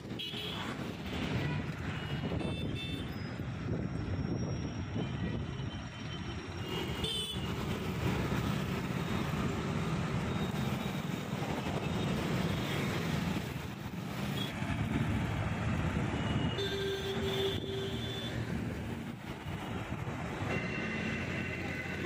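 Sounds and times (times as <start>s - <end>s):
road traffic rumble: 0.0s - 22.0s
motorbikes passing: 6.8s - 22.0s.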